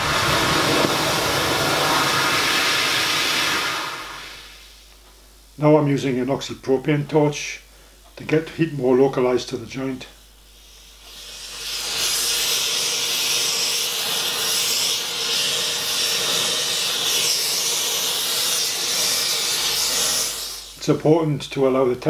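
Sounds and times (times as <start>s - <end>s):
torch flame hissing: 0.0s - 5.0s, 10.4s - 21.0s.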